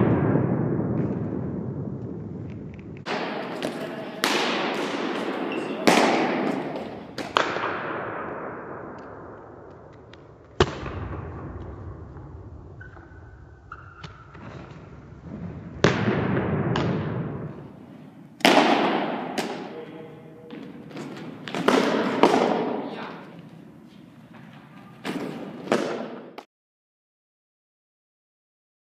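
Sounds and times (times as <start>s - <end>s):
baseballs popping into leather mitts: 2.5s - 7.7s, 20.5s - 22.8s.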